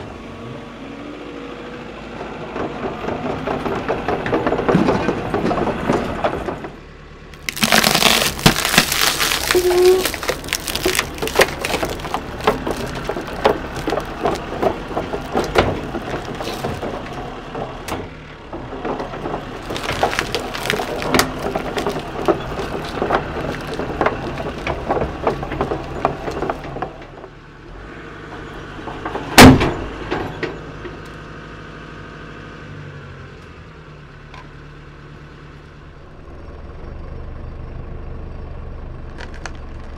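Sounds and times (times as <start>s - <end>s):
excavator engine running: 0.0s - 33.2s
plastic crackling and crunching: 7.3s - 17.4s, 19.3s - 26.7s, 39.1s - 39.9s.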